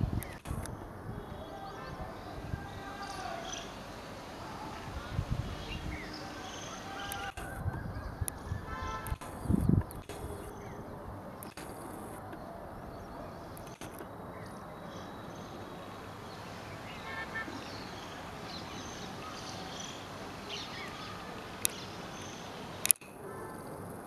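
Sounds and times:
steady background hiss: 0.0 - 7.6, 8.2 - 24.0
sharp click: 0.2 - 0.7, 9.0 - 10.4, 11.4 - 12.4, 13.6 - 14.1, 22.8 - 23.2.

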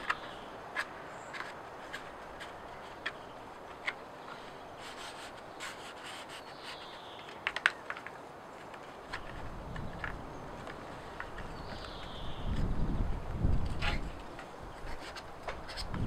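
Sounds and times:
birch bark rubbing and crackling: 0.0 - 16.0.

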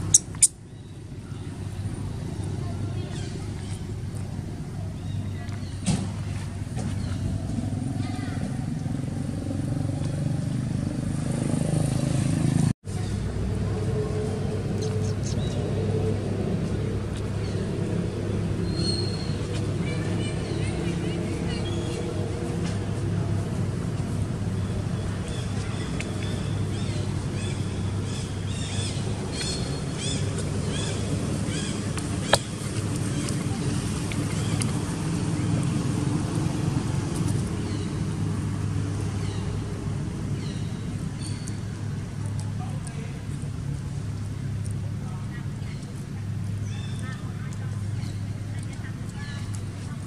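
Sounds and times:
bird chirping: 0.0 - 3.9, 14.8 - 15.7, 18.6 - 22.0, 24.6 - 34.8
low engine hum: 0.0 - 50.0
low rumble of motor traffic: 0.0 - 50.0.

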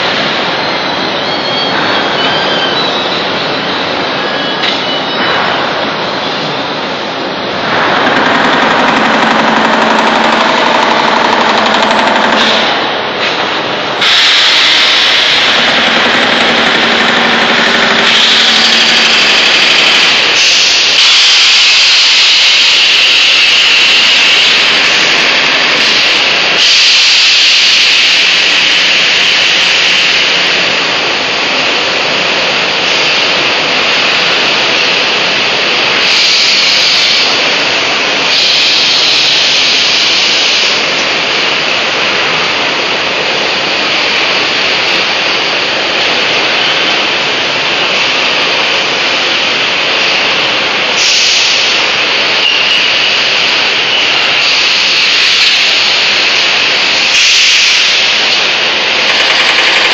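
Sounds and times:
molding machines hissing: 0.0 - 59.9.

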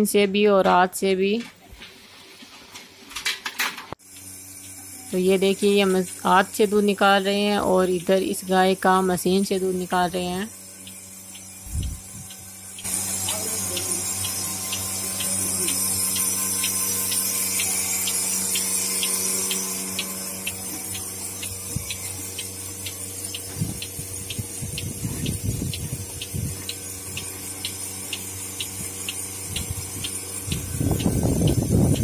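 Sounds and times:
pulsator clicking: 4.0 - 32.0
vacuum pump humming: 4.0 - 32.0
air hissing: 11.6 - 32.0.

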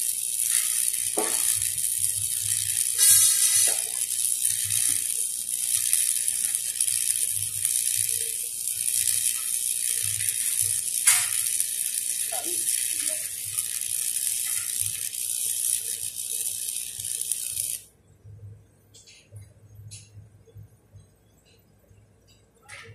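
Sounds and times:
welding arc crackling: 0.0 - 17.9.

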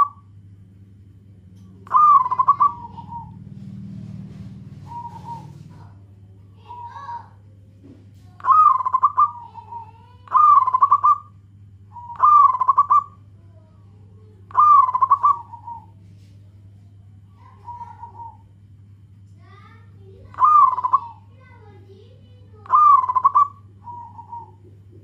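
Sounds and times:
dove cooing: 0.0 - 0.3, 1.8 - 7.4, 8.3 - 11.3, 11.9 - 13.3, 14.5 - 16.3, 17.1 - 18.6, 19.5 - 25.0.

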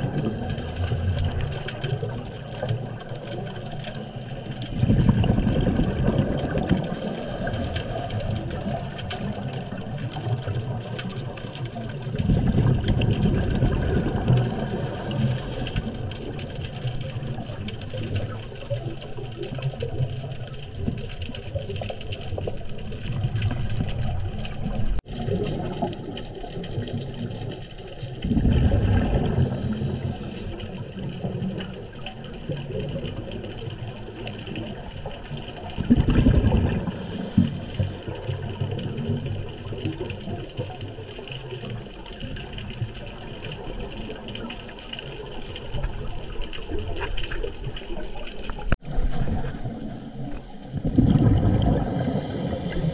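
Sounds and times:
underwater bubbling hiss: 0.0 - 48.8, 49.4 - 52.9
exhaled bubbles gushing: 0.0 - 52.9.

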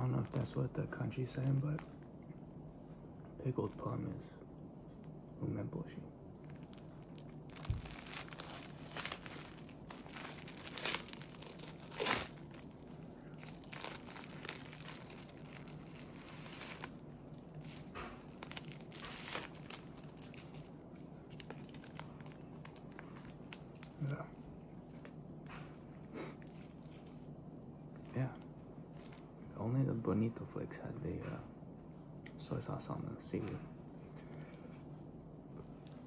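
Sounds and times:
plastic wrapper crinkling and tearing: 6.4 - 20.7, 21.3 - 24.0.

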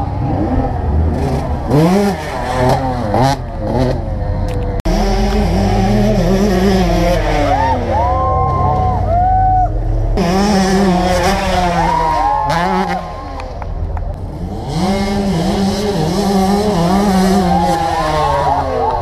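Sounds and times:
engine revving hard: 4.9 - 8.1, 10.1 - 13.2, 14.3 - 19.0.

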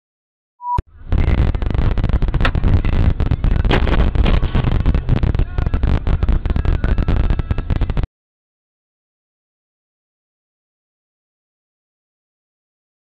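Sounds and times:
short beep: 0.6 - 0.8
distorted crackling rumble: 0.8 - 8.1.

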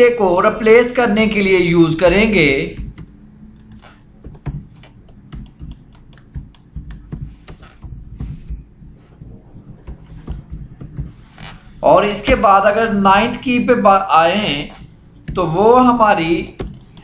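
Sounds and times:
keyboard keystroke clicks: 2.8 - 8.7.

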